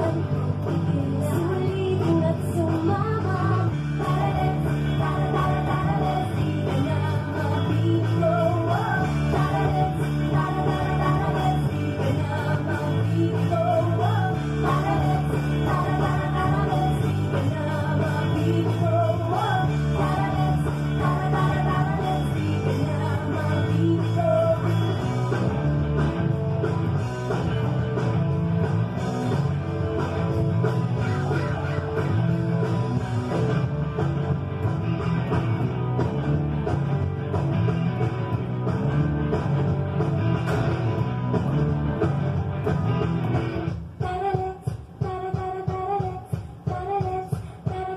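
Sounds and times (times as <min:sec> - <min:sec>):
person singing: 0:00.0 - 0:25.0
electric bass guitar: 0:00.0 - 0:43.9.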